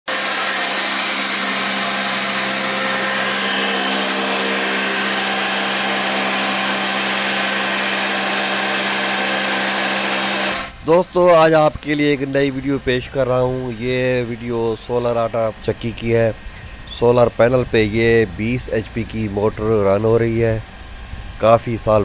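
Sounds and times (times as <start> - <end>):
electric motor humming: 0.1 - 22.0
flour mill whirring: 0.1 - 22.0.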